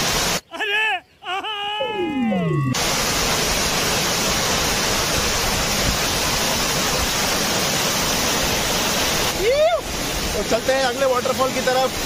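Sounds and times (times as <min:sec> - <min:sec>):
waterfall rushing: 0:00.0 - 0:00.4, 0:02.0 - 0:12.0.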